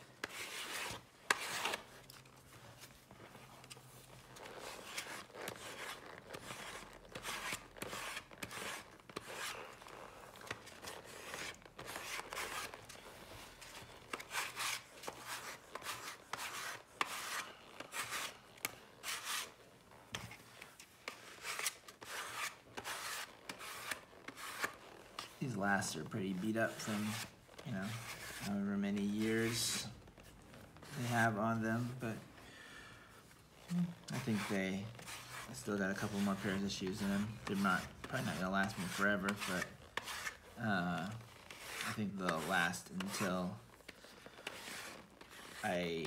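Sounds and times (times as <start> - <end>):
sandpaper rubbing on leather: 4.4 - 12.8, 13.6 - 19.6, 21.1 - 30.0, 34.0 - 46.0.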